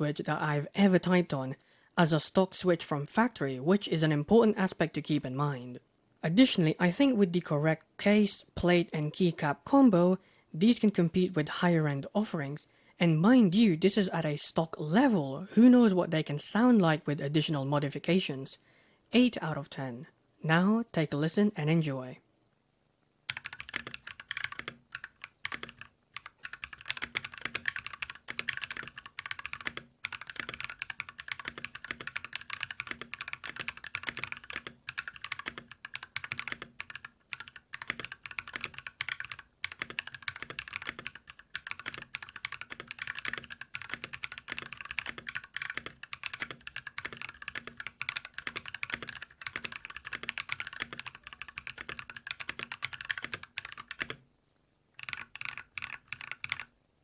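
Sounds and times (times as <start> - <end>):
fast typing on mechanical keyboard: 23.3 - 54.2, 55.0 - 56.7.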